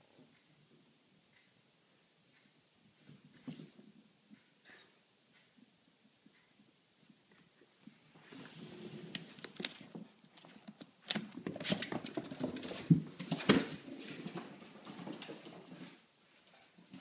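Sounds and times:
puppy paws pattering: 0:09.1 - 0:17.0.

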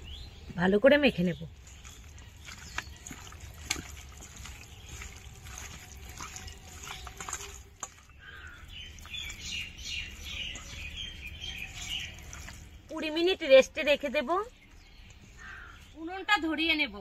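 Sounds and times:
birds chirping: 0:00.0 - 0:17.0
chicken squelching in marinade: 0:01.5 - 0:12.9.

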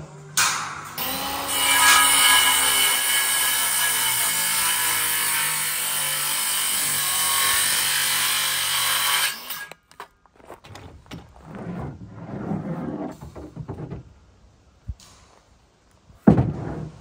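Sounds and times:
circular saw cutting wood: 0:01.0 - 0:09.8.

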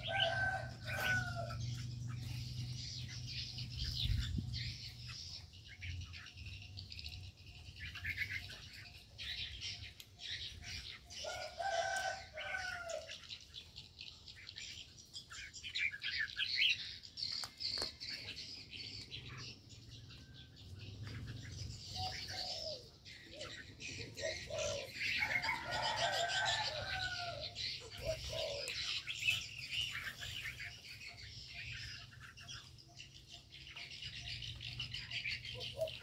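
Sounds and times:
dove cooing: 0:00.0 - 0:02.5, 0:11.2 - 0:13.1, 0:21.5 - 0:29.4, 0:34.2 - 0:36.0
birds chirping: 0:00.0 - 0:36.0.

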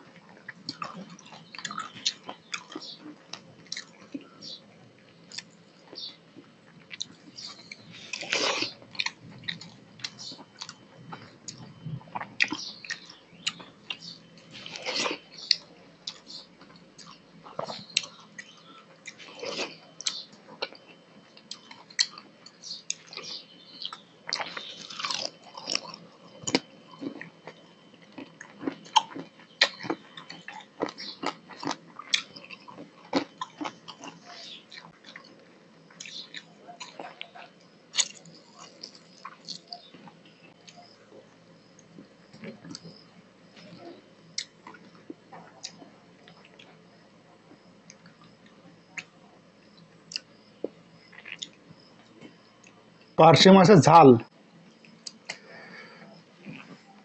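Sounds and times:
wet chewing: 0:00.2 - 0:04.3, 0:05.2 - 0:46.9, 0:49.7 - 0:52.8, 0:56.4 - 0:57.0
lip smacks and clicks: 0:54.8 - 0:55.4.

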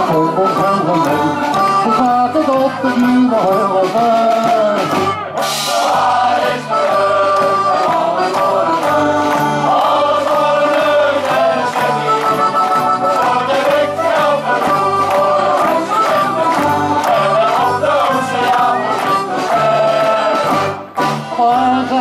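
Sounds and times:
steady beat: 0:00.0 - 0:21.3
male choir singing: 0:05.6 - 0:22.0.

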